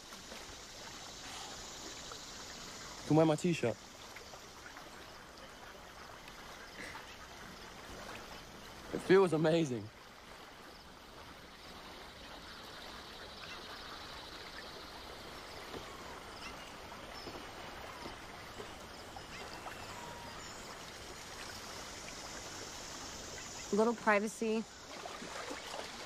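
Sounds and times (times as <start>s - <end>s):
water washing around swimmer: 0.0s - 26.0s
short bird calls: 15.6s - 20.8s.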